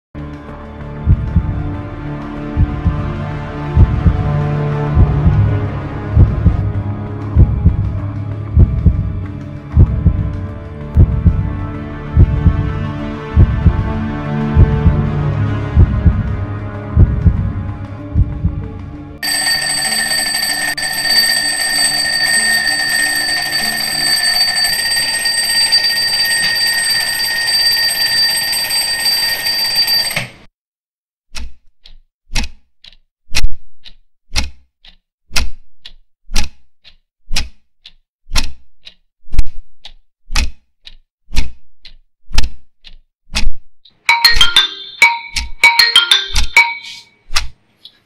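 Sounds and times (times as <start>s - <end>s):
high-pitched tone: 19.2s - 30.1s, 44.1s - 47.1s
alarm clock ticking: 19.2s - 30.3s, 44.1s - 47.0s
alarm clock ringing: 19.2s - 30.4s, 44.1s - 47.0s.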